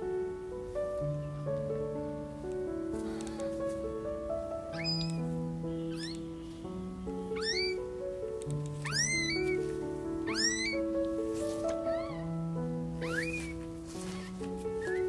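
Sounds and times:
background music with held notes: 0.0 - 15.0
kitten mewing: 4.8 - 5.2, 5.8 - 6.3, 7.3 - 7.8, 8.8 - 10.9, 11.8 - 12.2, 13.0 - 13.6.

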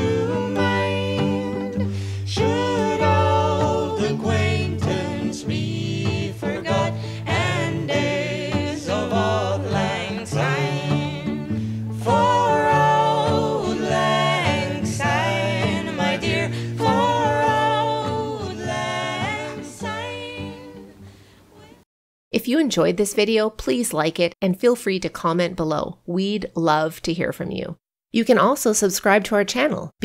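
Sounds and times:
song with singing voice: 0.0 - 21.0.

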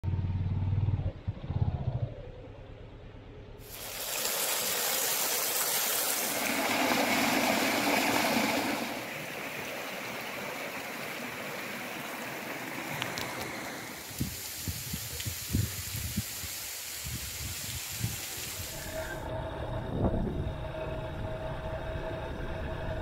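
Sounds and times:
rushing mountain stream: 3.7 - 19.1.

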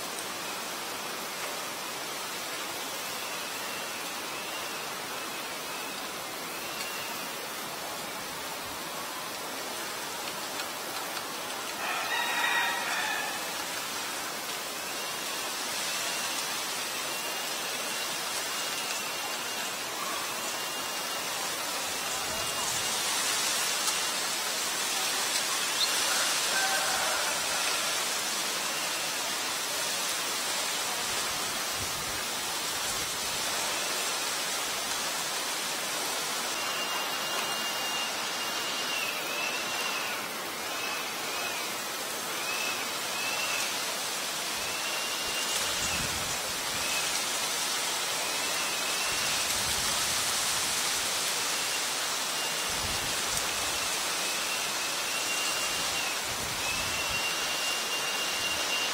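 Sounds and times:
steady outdoor hiss: 0.0 - 58.9
rooster crowing: 11.8 - 13.6, 26.0 - 28.2.

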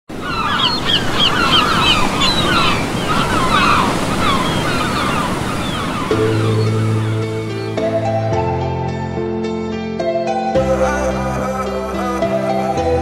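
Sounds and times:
birds calling: 0.1 - 13.0
sea surf washing: 0.1 - 13.0
soft music with held notes: 6.0 - 13.0.

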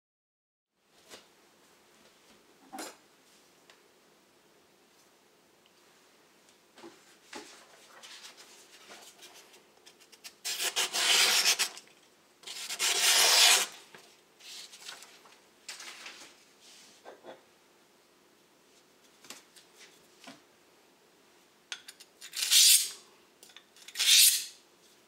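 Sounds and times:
knife slicing through paper: 10.4 - 11.8, 12.5 - 13.8
paper rustling: 12.5 - 16.4.

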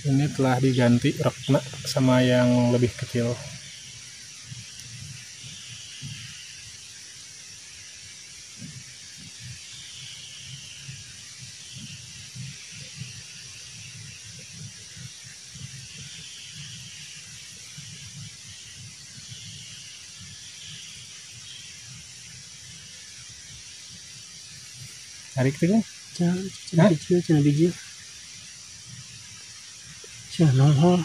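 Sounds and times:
insect chirring: 0.0 - 31.0
warbling calls: 8.5 - 31.0.

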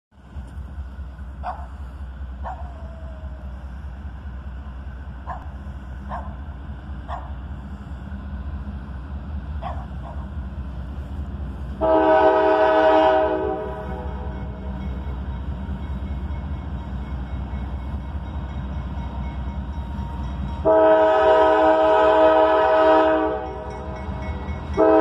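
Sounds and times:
dog barking: 1.4 - 1.8, 2.4 - 2.9, 5.3 - 5.5, 6.1 - 6.4, 7.1 - 7.3, 9.6 - 10.2
locomotive air horn chord: 11.8 - 14.7, 20.6 - 24.0, 24.6 - 25.0.

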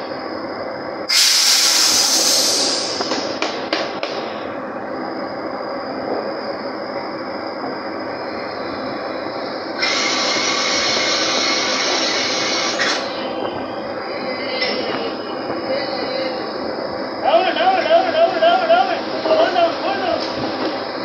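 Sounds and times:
loud hiss: 1.0 - 4.6, 8.2 - 21.0.

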